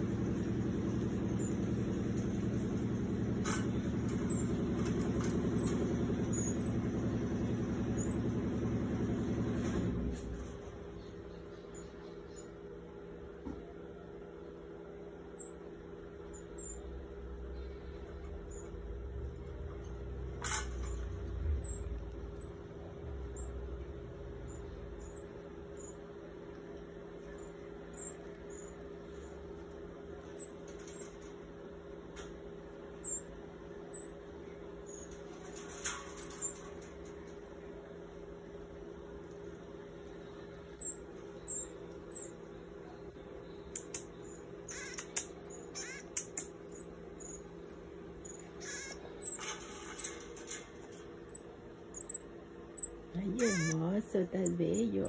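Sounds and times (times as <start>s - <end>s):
low mechanical hum: 0.0s - 55.0s
marmoset chirps: 11.0s - 12.6s, 16.2s - 16.9s, 21.6s - 22.6s, 24.4s - 26.1s, 27.3s - 29.4s, 33.0s - 34.2s, 40.2s - 50.2s, 51.3s - 55.0s
light clicks on wire cage: 19.5s - 22.5s, 30.2s - 31.5s, 34.8s - 37.9s, 43.6s - 53.0s
sharp click: 43.7s - 44.2s, 44.9s - 46.6s.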